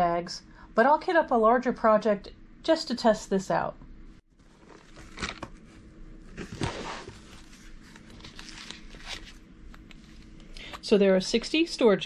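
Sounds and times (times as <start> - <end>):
crinkly plastic rustle: 6.3 - 9.4.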